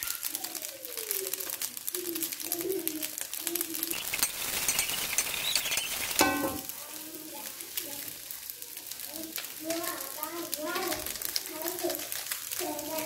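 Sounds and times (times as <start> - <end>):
low bird calls: 0.0 - 6.7
rice sizzling in oil: 0.0 - 13.0
metal spatula scraping wok: 3.9 - 6.8.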